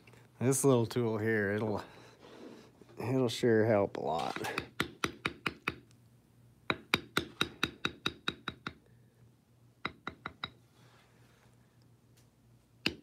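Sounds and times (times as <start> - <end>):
mallet tapping leather stamping tool: 4.5 - 5.8, 6.7 - 8.8, 9.8 - 10.6.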